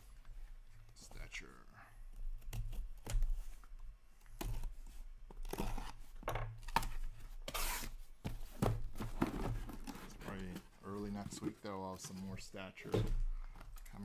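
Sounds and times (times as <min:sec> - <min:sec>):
packing tape ripping off cardboard: 0:06.6 - 0:08.0.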